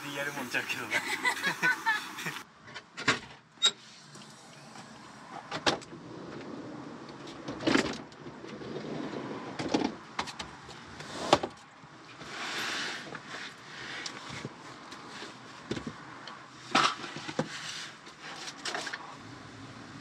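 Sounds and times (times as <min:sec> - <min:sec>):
steady low hiss: 0:00.0 - 0:02.4.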